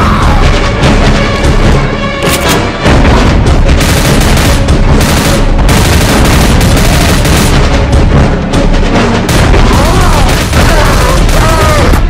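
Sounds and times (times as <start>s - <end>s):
dense action music: 0.0s - 12.0s
sudden blasts: 3.6s - 8.2s, 9.3s - 12.0s
heavy booms: 9.3s - 12.0s.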